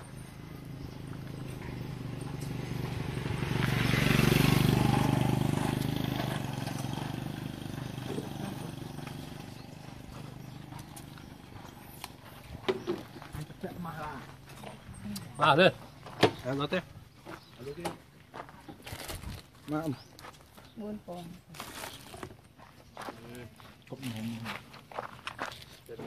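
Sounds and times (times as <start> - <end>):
motorcycle engine passing by: 0.0 - 18.5.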